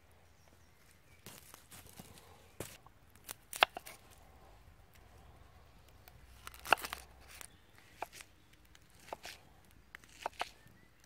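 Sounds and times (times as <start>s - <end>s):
onion skin crackling: 1.3s - 4.3s, 5.8s - 11.0s.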